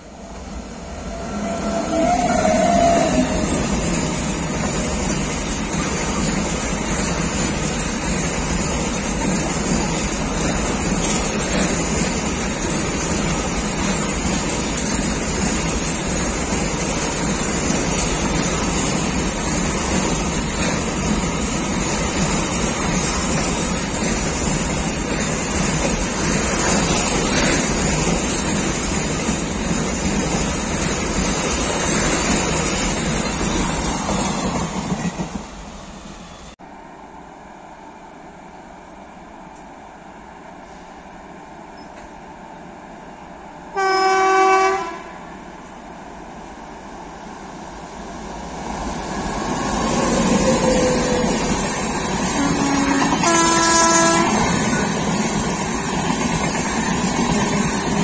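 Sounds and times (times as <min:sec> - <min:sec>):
freight wagons rumbling on rails: 0:00.0 - 0:35.9, 0:48.4 - 0:58.0.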